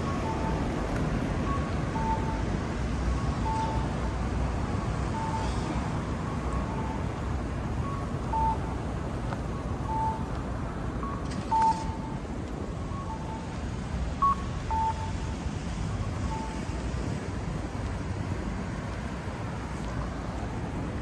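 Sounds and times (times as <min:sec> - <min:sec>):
short electronic beeps: 0:03.4 - 0:03.9, 0:05.1 - 0:05.7, 0:07.8 - 0:08.7, 0:11.0 - 0:12.2, 0:14.2 - 0:15.4, 0:16.2 - 0:16.8.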